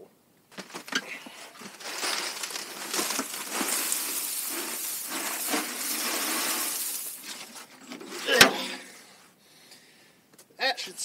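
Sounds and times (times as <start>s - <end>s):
ashes pouring from metal pan: 1.6s - 8.4s.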